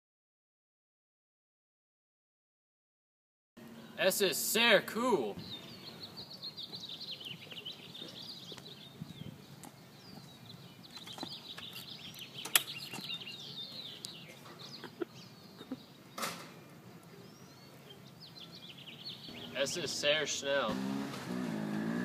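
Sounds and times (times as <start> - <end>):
small birds chirping: 3.6 - 21.0.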